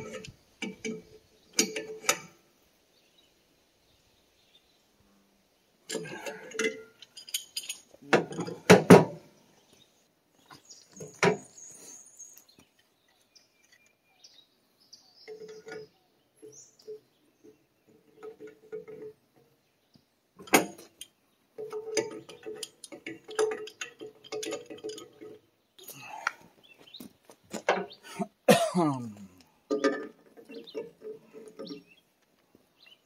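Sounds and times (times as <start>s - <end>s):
hand tools clanking on metal: 0.0s - 2.3s, 5.9s - 9.2s, 20.4s - 25.4s, 27.5s - 32.0s.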